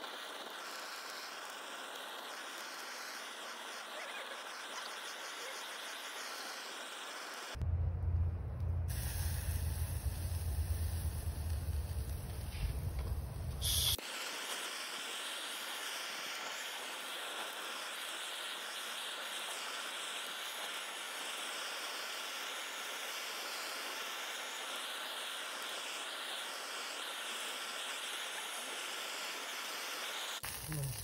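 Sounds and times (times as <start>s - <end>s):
skewers sizzling on a grill: 0.0s - 7.6s, 8.9s - 31.0s
low rumble: 7.6s - 13.8s.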